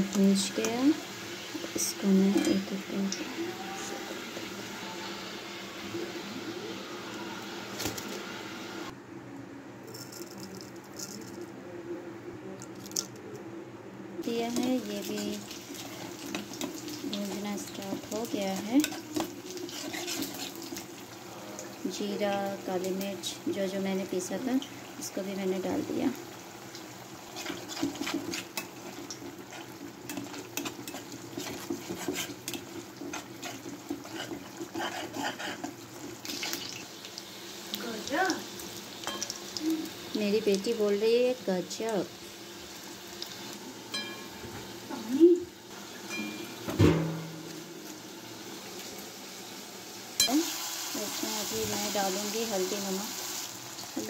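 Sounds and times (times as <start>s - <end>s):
hot oil sizzling: 0.0s - 9.0s, 14.2s - 54.0s
seeds crackling in hot oil: 0.0s - 9.0s, 14.2s - 44.2s, 47.5s - 54.0s
metal spoon scraping a pan: 1.9s - 2.8s, 14.6s - 20.9s, 27.3s - 36.8s
spoon clink: 43.9s - 44.3s, 46.1s - 46.5s.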